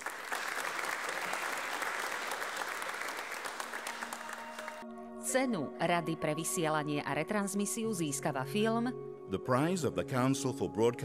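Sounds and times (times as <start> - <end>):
audience applauding: 0.0 - 4.8.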